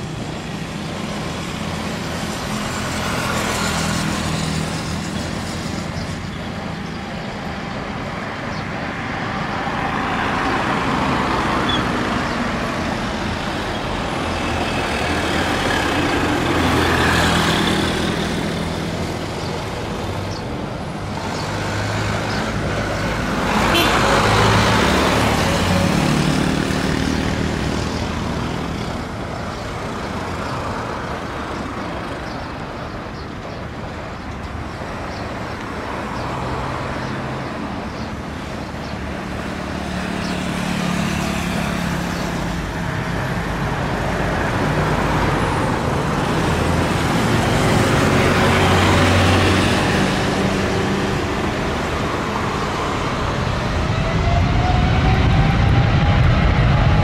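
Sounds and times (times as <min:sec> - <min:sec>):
engine rumble: 0:40.5 - 0:57.0.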